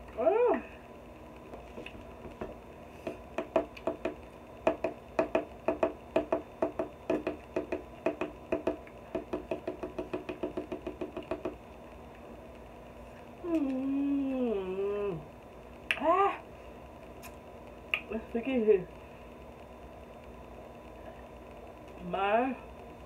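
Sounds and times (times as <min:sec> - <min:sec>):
rapid dull knocks: 0:02.2 - 0:11.6.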